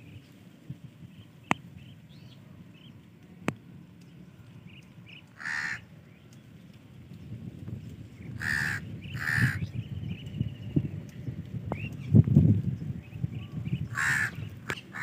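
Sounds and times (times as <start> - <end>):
low rumble: 0.0 - 15.0
harsh caw-like bird calls: 5.3 - 5.9, 8.3 - 9.7, 13.9 - 15.0.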